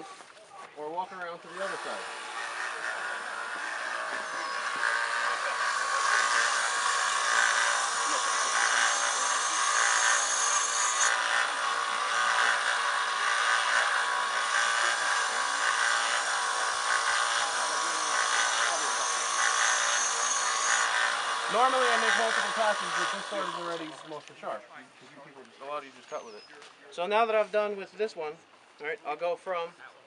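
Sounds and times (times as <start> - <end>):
belt grinder grinding steel: 1.4 - 24.2.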